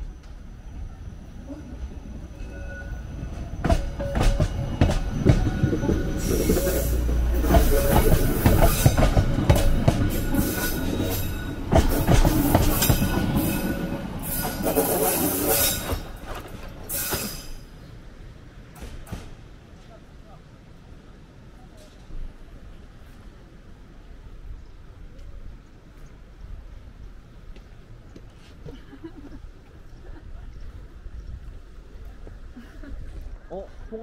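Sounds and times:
train wheels clattering and squealing: 1.7 - 17.9, 18.8 - 19.4.

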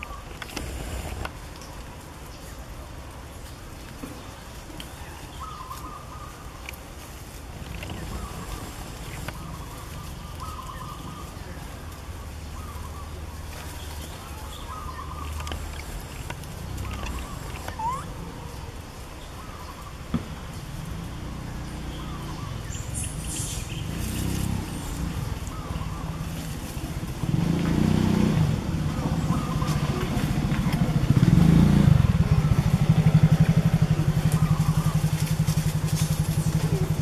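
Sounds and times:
engine running with pulsing low note: 7.2 - 19.1, 20.4 - 37.0.

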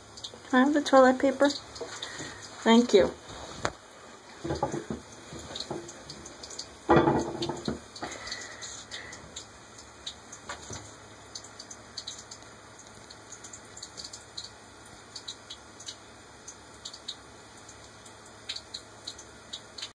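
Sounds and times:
faint dripping ticks: 0.0 - 2.7, 7.6 - 19.9.

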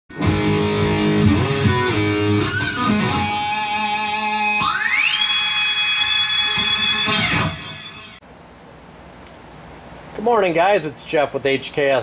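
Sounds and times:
guitar sustained notes: 0.1 - 8.2.

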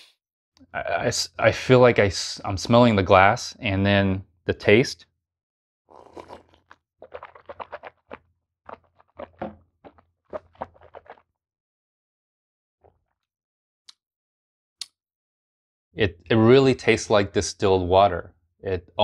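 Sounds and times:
person sipping and swallowing: 5.9 - 11.3.

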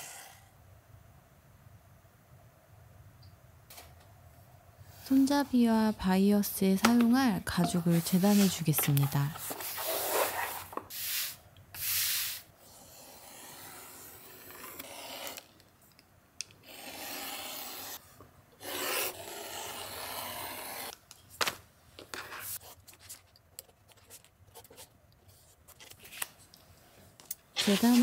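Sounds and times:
light scratches: 7.6 - 10.7, 27.6 - 28.0.

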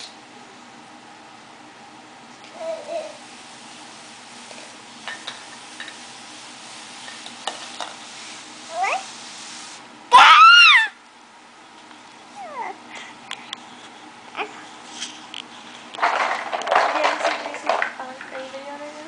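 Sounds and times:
toddler squealing: 10.1 - 11.0.

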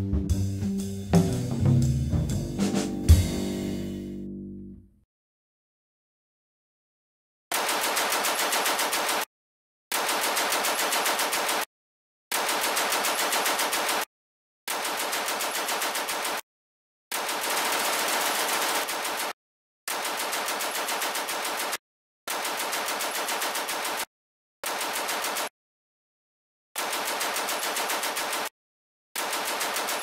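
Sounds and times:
machine-gun fire: 7.5 - 9.3, 9.9 - 11.7, 12.3 - 14.1, 14.7 - 16.4, 17.1 - 25.5, 26.8 - 28.5, 29.2 - 30.0.

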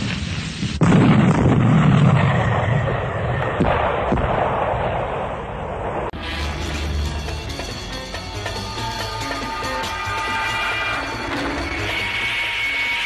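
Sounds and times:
loud explosion: 0.0 - 6.2
explosion rumble: 0.0 - 6.7
music: 6.2 - 13.0.

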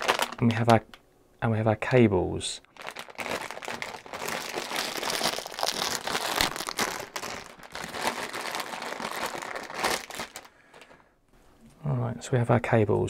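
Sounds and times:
plastic bag crinkling: 0.0 - 0.8, 2.7 - 11.0.

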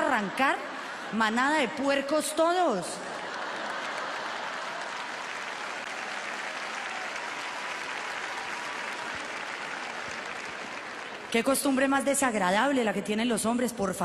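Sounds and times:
large audience applauding: 2.5 - 12.1.

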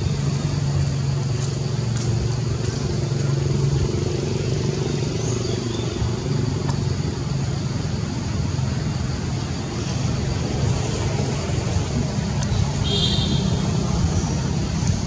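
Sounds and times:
low engine hum: 0.0 - 15.0
road traffic noise: 0.0 - 15.0.

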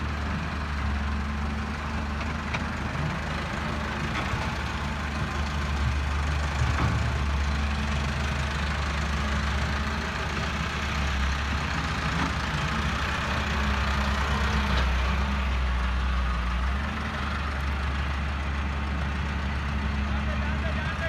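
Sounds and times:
tractor diesel engine: 0.0 - 21.0
excavator digging: 0.3 - 15.7.

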